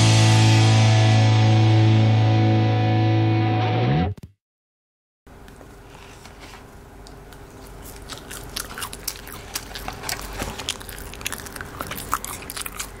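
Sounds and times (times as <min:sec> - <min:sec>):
fries and paper carton crackling: 0:07.4 - 0:13.0.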